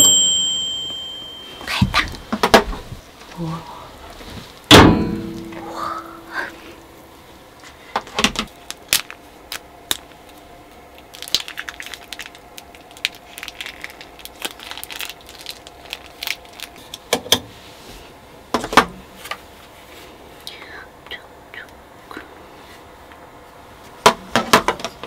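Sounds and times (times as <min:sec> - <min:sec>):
faint steady hum: 0:00.0 - 0:25.0
small objects clicking and rattling: 0:11.0 - 0:17.0.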